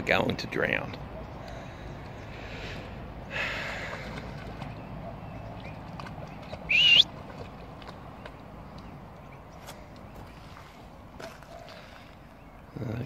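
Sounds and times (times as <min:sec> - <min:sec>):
whistle-like call rising and wavering: 0:06.7 - 0:07.1.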